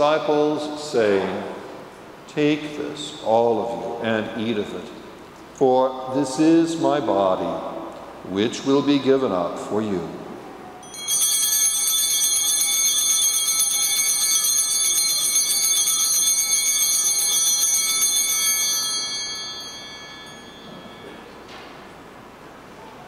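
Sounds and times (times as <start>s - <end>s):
altar bells ringing: 10.8s - 22.3s.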